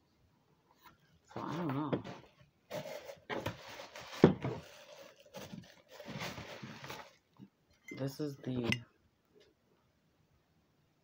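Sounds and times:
bubble wrap and boxes rustling: 1.2s - 7.5s.

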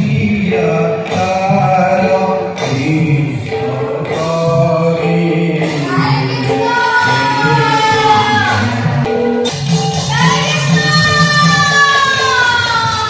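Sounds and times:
several voices singing slowly: 0.0s - 9.4s.

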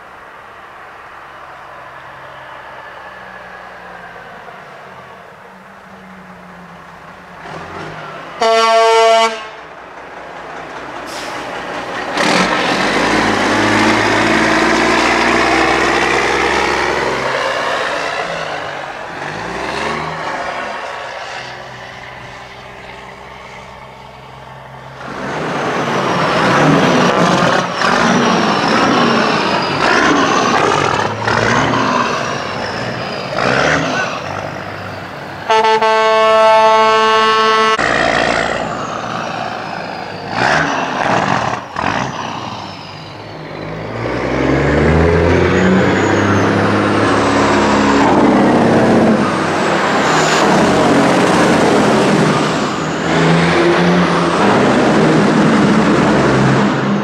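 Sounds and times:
diesel truck engines passing: 0.0s - 57.0s
truck air horn blasting: 8.4s - 9.7s, 35.5s - 37.9s.

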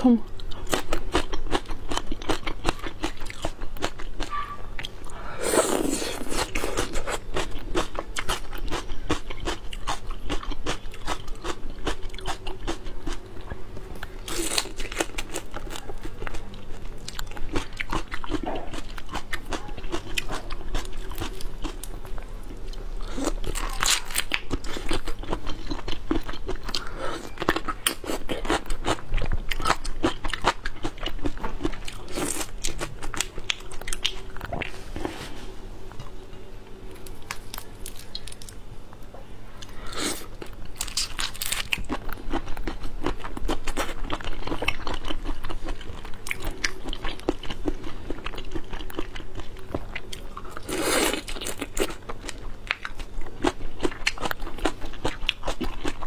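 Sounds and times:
shrimp shell crackling and crunching: 37.0s - 38.6s, 40.1s - 49.1s.

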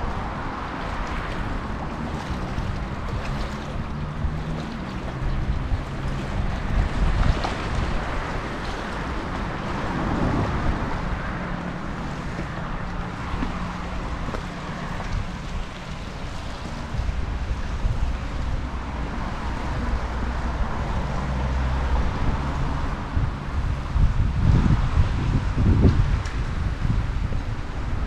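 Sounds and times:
distant engine hum: 0.0s - 28.0s
wind rumbling on microphone: 0.0s - 28.0s.

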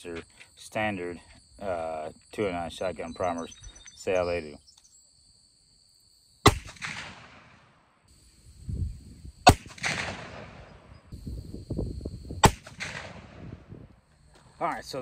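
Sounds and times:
rifle shots with echo: 6.4s - 7.8s, 9.5s - 10.9s, 12.4s - 13.5s.

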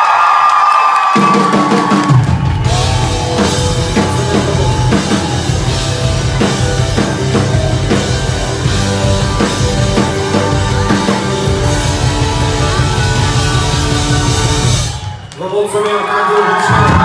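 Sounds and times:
drum kit beat: 1.2s - 15.2s
electric guitars: 2.2s - 15.1s.

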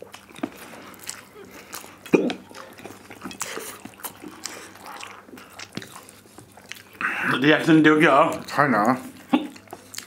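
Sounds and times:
slurping and chewing noodles: 0.0s - 10.0s.

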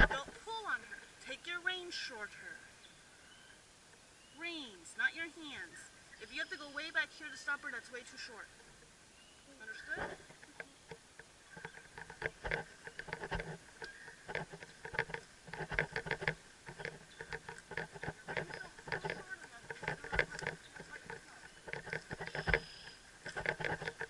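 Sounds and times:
camera rattling against helmet: 0.0s - 0.5s, 9.8s - 24.0s.

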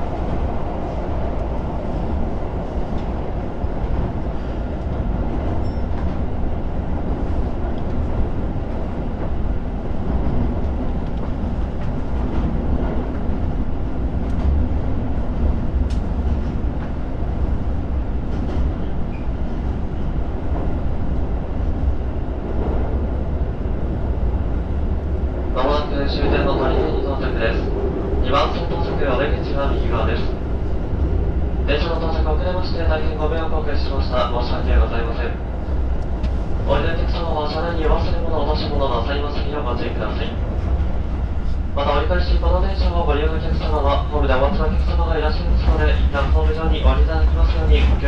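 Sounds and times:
train wheels rumbling on rail: 0.0s - 48.0s
faint clicks: 15.8s - 16.1s.

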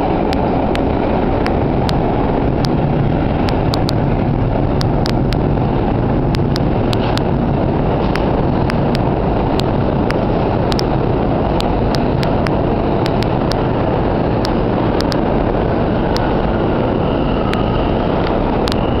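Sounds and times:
subway train rumbling: 0.0s - 19.0s
sharp rail clicks: 0.1s - 4.0s, 4.6s - 5.6s, 6.2s - 16.6s, 17.4s - 19.0s
faint high squeal: 16.8s - 19.0s.

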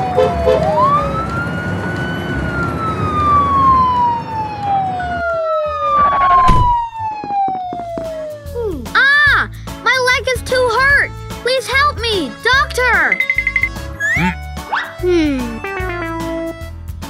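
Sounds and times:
ambulance siren wailing: 0.0s - 8.6s.

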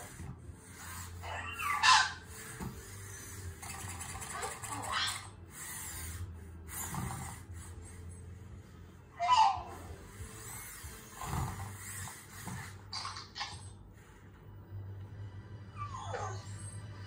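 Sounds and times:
electronic puppy sounds: 0.0s - 14.2s, 15.7s - 17.0s.

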